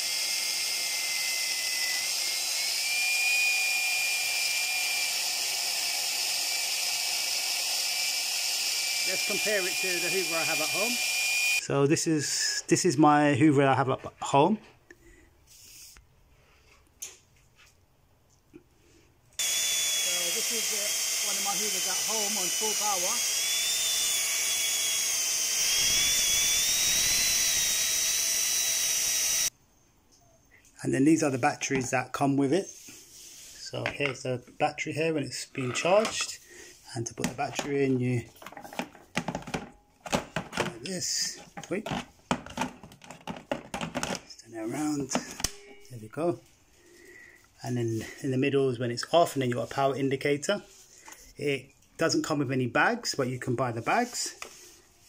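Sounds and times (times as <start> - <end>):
vacuum cleaner motor whine: 0.0 - 11.6, 19.4 - 29.5.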